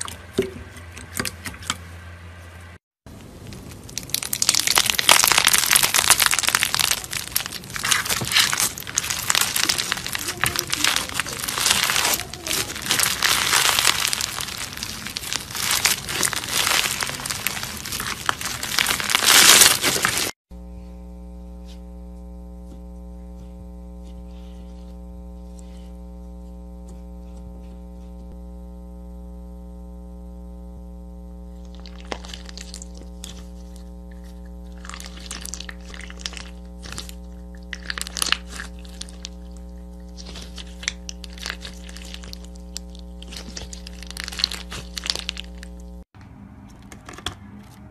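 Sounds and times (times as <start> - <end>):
electrical hum: 0.0 - 47.9
crunchy slime crackling: 3.2 - 20.4, 31.6 - 46.1.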